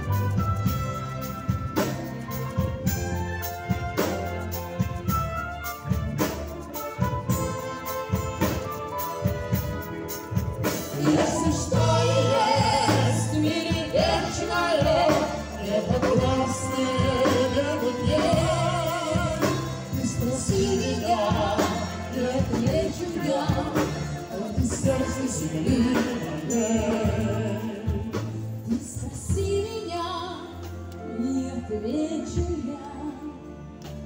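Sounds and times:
wind band playing a tune: 0.0 - 34.0
person singing: 10.9 - 33.6.

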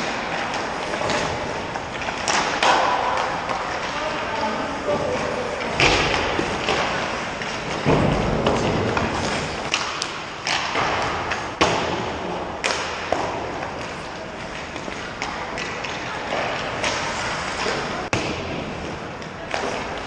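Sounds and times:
pucks cracking and thudding: 0.0 - 20.0
skates hissing on ice: 8.8 - 9.9.

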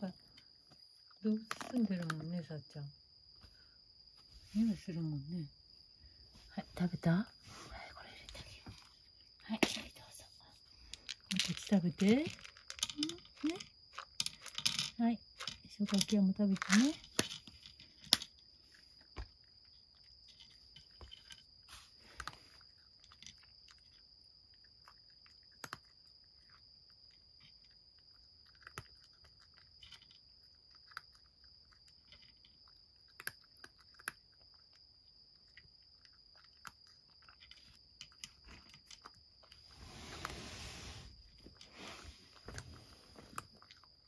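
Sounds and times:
cat crunching dry kibble: 22.0 - 34.8.

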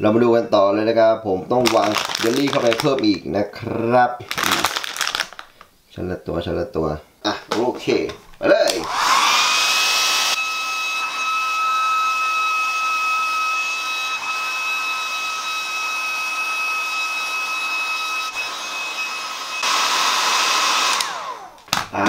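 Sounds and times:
hair dryer blowing: 8.7 - 21.7.

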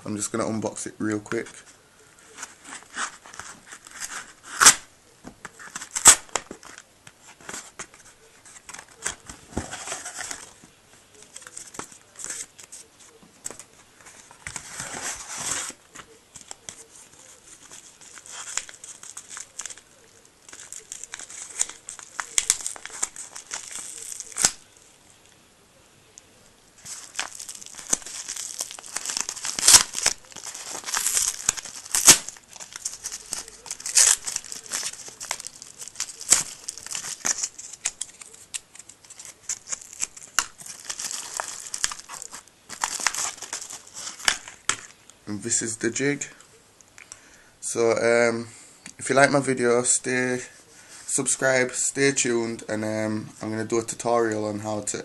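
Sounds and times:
paper packaging tearing and crinkling: 2.4 - 4.9, 5.6 - 6.8, 13.5 - 24.9, 26.8 - 44.9.

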